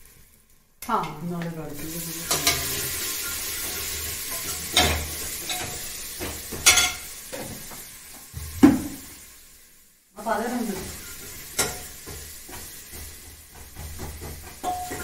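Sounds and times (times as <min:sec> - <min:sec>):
onions sizzling in oil: 0:00.0 - 0:15.0
steel spoon scraping a pot: 0:02.2 - 0:05.8.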